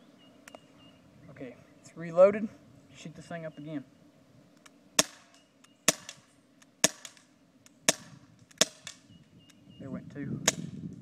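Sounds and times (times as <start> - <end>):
air pistol shots cracking: 5.0 - 9.1, 10.4 - 10.7.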